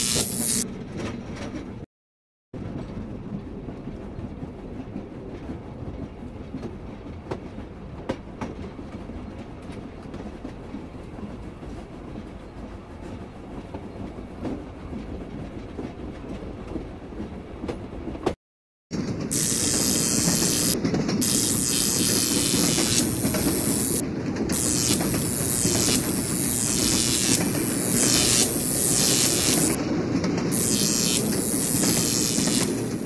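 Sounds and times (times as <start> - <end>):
train rumbling on rails: 0.7 - 1.8, 2.6 - 18.4, 19.0 - 21.2, 24.0 - 24.6, 29.8 - 30.6
wheels clicking over rail joints: 0.7 - 1.8, 20.8 - 21.2.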